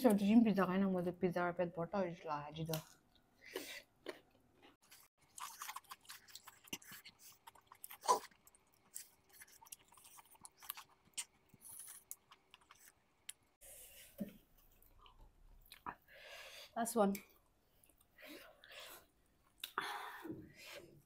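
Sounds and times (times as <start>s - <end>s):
person chewing crunchy food: 2.9s - 13.6s.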